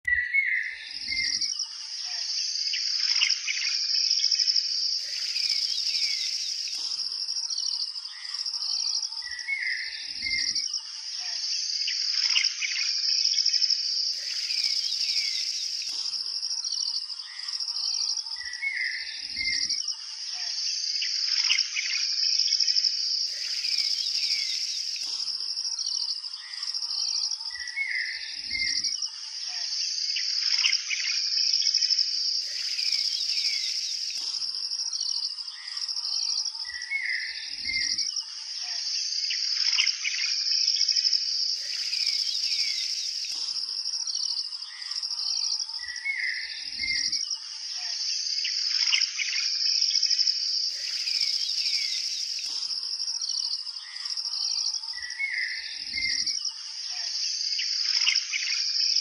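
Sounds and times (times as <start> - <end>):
bird chirps and calls: 0.1 - 3.9, 5.0 - 13.5, 14.1 - 22.2, 23.2 - 31.2, 32.4 - 38.0, 41.6 - 49.6, 50.7 - 58.7
insect trill: 0.1 - 59.0.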